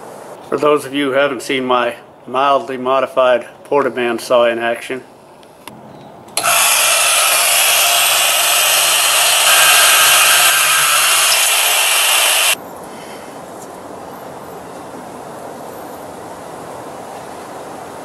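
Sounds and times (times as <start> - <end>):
band saw cutting steel: 6.4 - 12.6.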